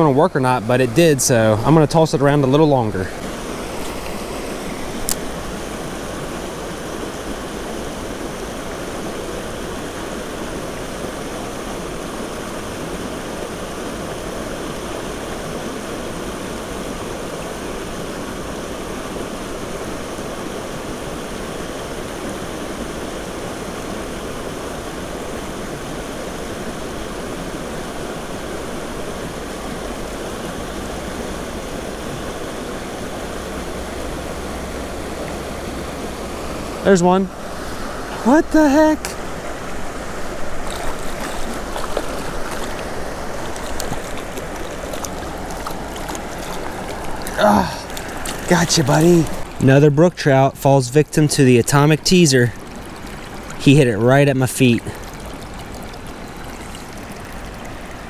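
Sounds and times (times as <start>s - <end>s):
water rushing over rocks: 0.0s - 58.0s.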